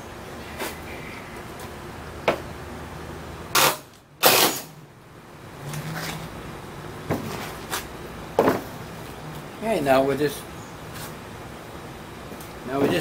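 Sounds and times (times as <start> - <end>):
short loud noise bursts: 3.5 - 4.8.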